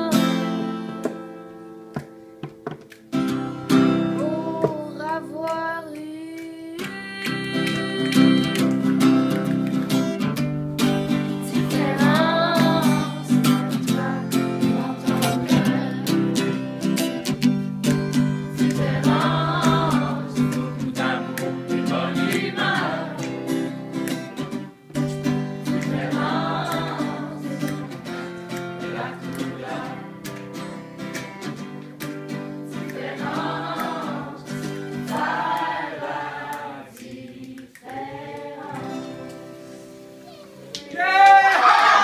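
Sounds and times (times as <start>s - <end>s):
strummed acoustic guitar: 0.0s - 5.8s, 6.6s - 37.1s
group singing in unison: 11.3s - 16.9s, 18.5s - 24.4s, 25.4s - 31.6s, 32.6s - 39.8s.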